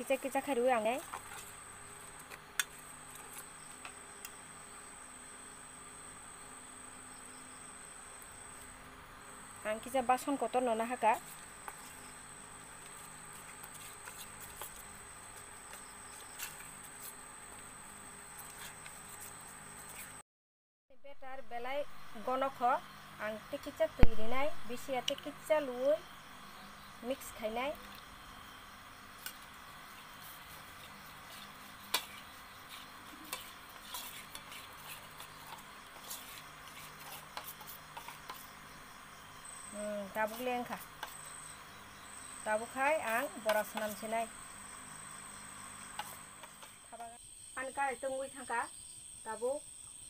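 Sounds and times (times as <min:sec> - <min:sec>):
spoon stirring batter: 0:10.4 - 0:20.1, 0:29.2 - 0:41.9, 0:42.6 - 0:44.1, 0:45.0 - 0:46.8
faint high-pitched whine and hiss: 0:21.0 - 0:50.0
spoon stirring in metal bowl: 0:30.3 - 0:38.8, 0:40.2 - 0:41.5, 0:45.9 - 0:46.8.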